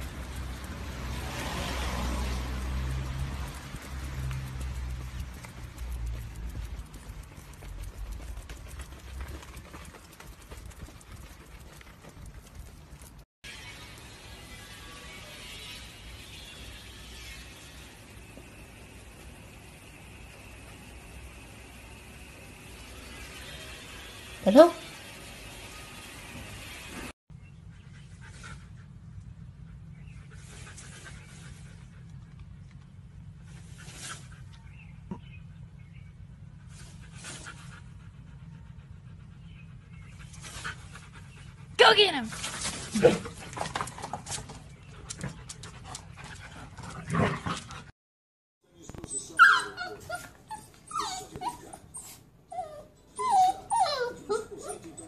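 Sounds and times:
dog panting: 5.3 - 13.2, 36.5 - 44.1, 44.8 - 47.9
dog whimpering and yipping: 48.9 - 55.0.

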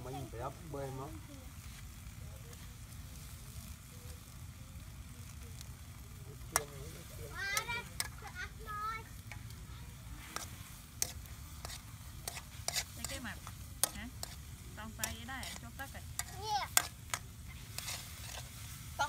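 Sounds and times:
food sizzling: 0.0 - 19.0
spoon scraping a wok: 7.6 - 8.3, 9.2 - 19.0.

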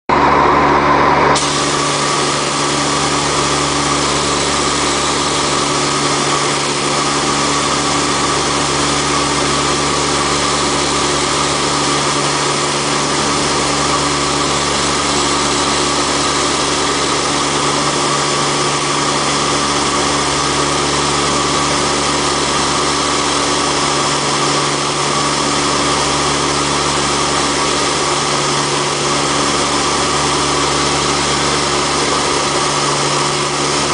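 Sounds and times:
turboprop engines droning: 0.1 - 33.9
rushing hiss: 1.4 - 7.4.

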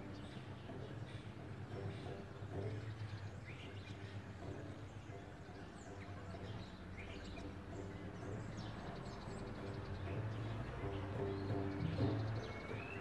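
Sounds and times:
birds chirping: 0.0 - 13.0
plucked bass lute: 0.0 - 13.0.

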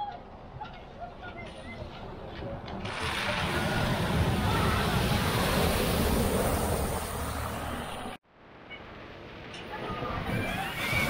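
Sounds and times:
vehicle engine: 1.5 - 8.2
water rushing from wheels: 2.7 - 8.2, 9.8 - 11.0.

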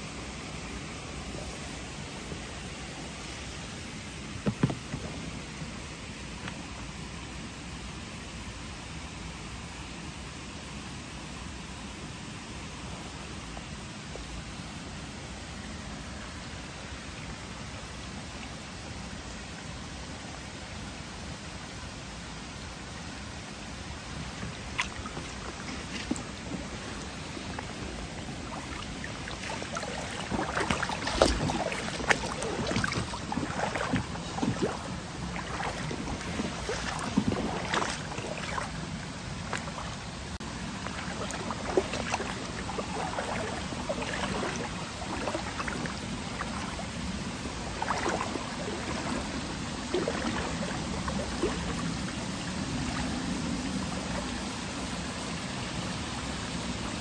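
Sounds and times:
stream rushing: 0.0 - 57.0
feet wading through water: 23.9 - 54.6.

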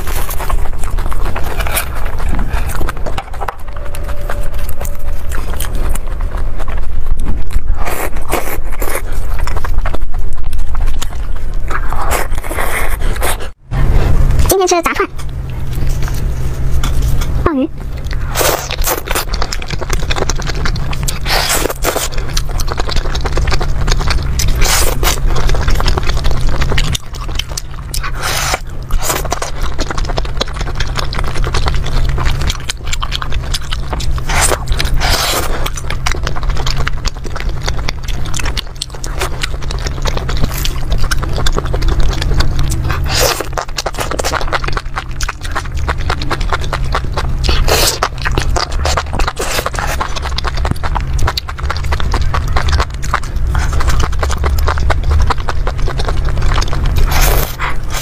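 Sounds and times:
chewing and biting food: 0.0 - 58.0
steady low hum: 0.0 - 58.0.

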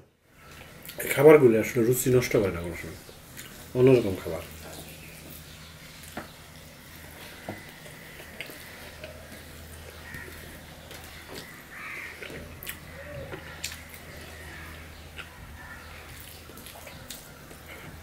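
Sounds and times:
steady low hum: 0.0 - 18.0
chewing: 3.1 - 3.7, 4.4 - 18.0.

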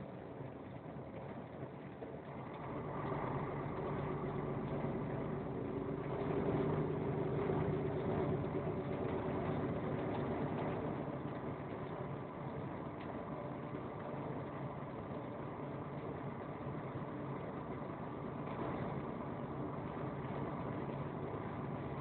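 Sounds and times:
vehicle engine running: 0.1 - 22.0.

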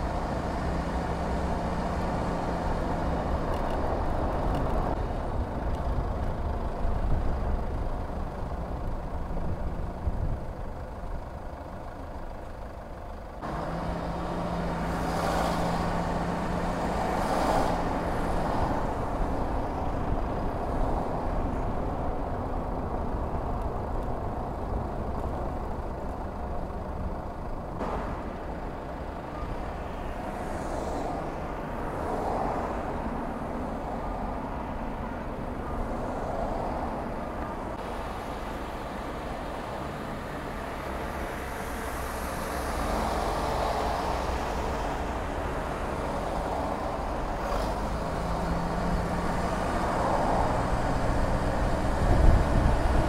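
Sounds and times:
car engine and tyres rumbling: 0.0 - 53.0.

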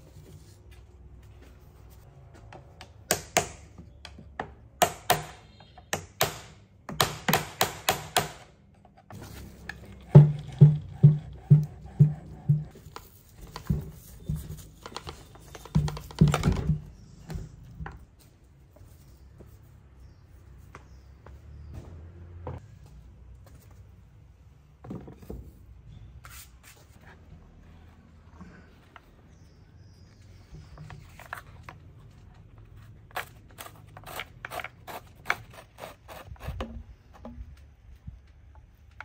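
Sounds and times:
hammer knocking on metal: 10.1 - 12.7.

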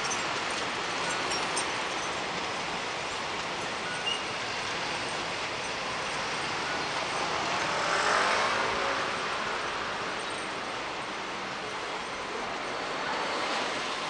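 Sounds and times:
car passing by: 6.2 - 14.0.

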